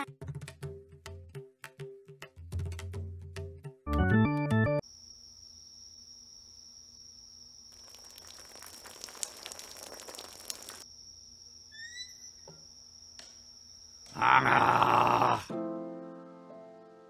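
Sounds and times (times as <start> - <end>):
crackling drips: 7.7 - 10.9
water spattering: 7.8 - 10.8.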